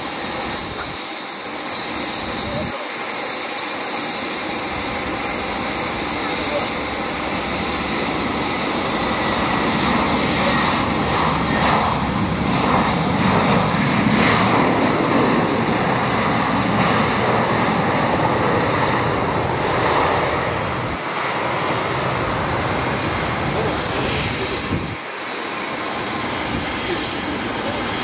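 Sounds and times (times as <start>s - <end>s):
jet engines roaring: 0.0s - 28.0s.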